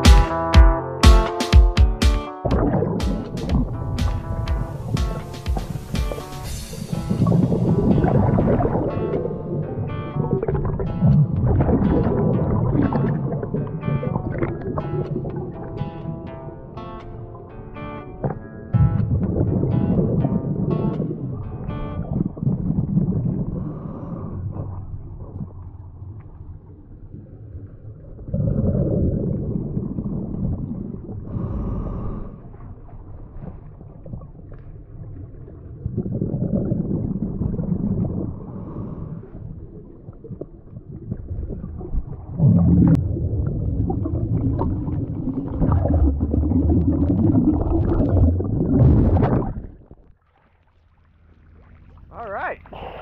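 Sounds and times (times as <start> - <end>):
underwater regulator bubbling: 2.5 - 15.8, 18.2 - 26.2, 28.2 - 32.2, 33.4 - 50.1.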